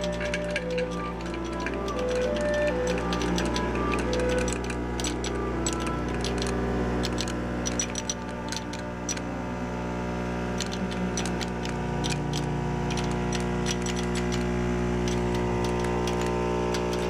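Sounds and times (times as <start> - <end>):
capsules clicking into plastic bottle: 0.0 - 9.2
steady machine hum: 0.0 - 17.0.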